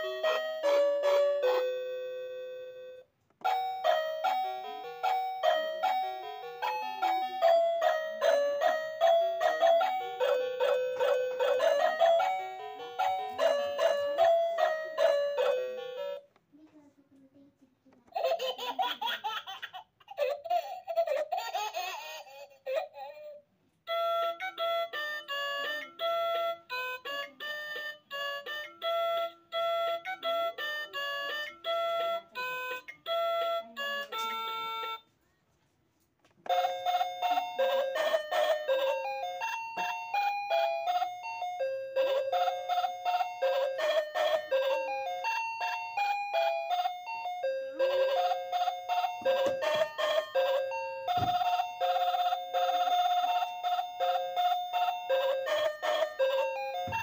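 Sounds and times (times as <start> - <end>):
bell-like melody: 0.0 - 16.2, 36.5 - 57.0.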